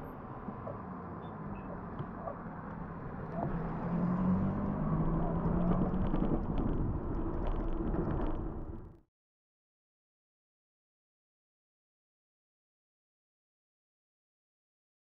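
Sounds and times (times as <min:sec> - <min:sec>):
bicycle ride rumble: 0:00.3 - 0:09.0.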